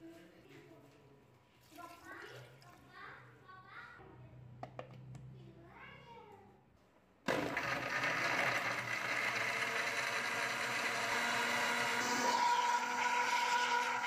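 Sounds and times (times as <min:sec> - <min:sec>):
blender blending ice: 0:07.3 - 0:14.0.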